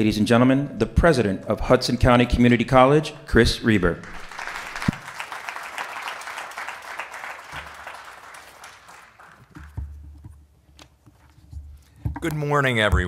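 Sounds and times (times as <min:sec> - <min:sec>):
audience applause: 0:04.0 - 0:09.8.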